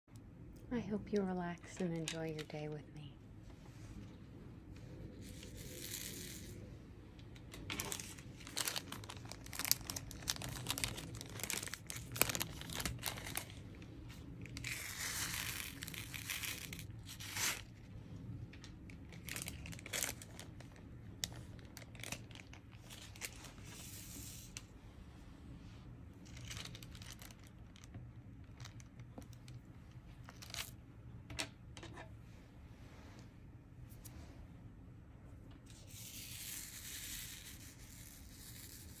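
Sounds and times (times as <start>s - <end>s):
plastic rustling and crinkling: 5.1s - 24.7s, 26.2s - 30.8s.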